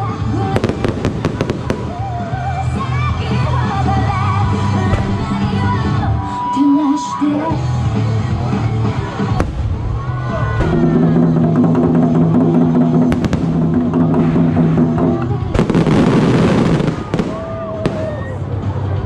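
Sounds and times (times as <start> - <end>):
music with long held notes: 0.0 - 19.0
fireworks banging: 0.4 - 2.6, 4.8 - 6.1, 12.7 - 18.2.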